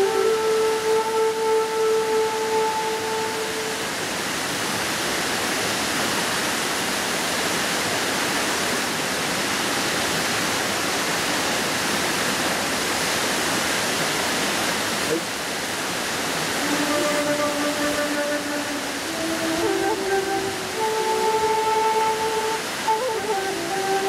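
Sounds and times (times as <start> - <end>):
shakuhachi note: 0.0 - 4.5, 16.5 - 24.0
waterfall rushing: 0.0 - 24.0.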